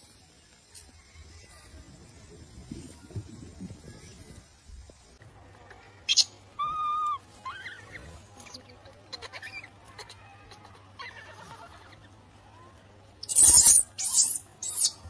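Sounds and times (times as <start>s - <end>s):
baby macaque coo: 6.1s - 12.1s, 13.3s - 15.0s
macaque rising squeaks: 13.2s - 15.0s.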